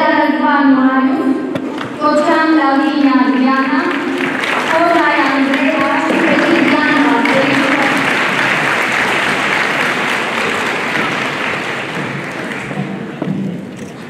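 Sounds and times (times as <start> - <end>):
audience applauding: 2.8 - 13.2.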